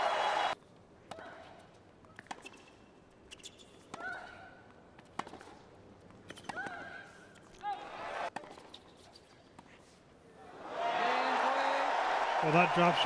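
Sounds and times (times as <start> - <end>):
tennis ball hitting racket: 5.0 - 5.6.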